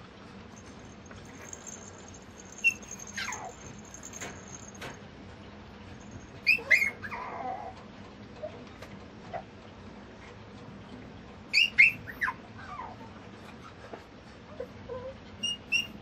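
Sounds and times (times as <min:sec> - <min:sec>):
puppy whimpering squeaks: 0:02.4 - 0:04.8, 0:06.4 - 0:07.8, 0:11.5 - 0:13.8, 0:14.5 - 0:16.0.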